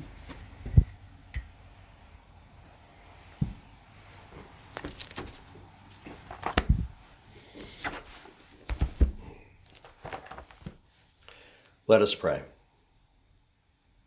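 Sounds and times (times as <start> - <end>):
heavy thumps: 0.6 - 1.0, 6.1 - 7.1, 8.6 - 10.8.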